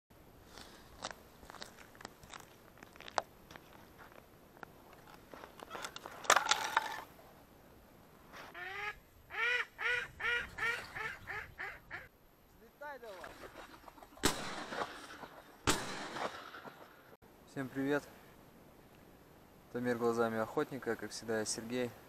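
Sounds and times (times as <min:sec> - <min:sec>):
ice clicks and crackles: 0:00.5 - 0:07.1
duck quacking: 0:08.6 - 0:12.1.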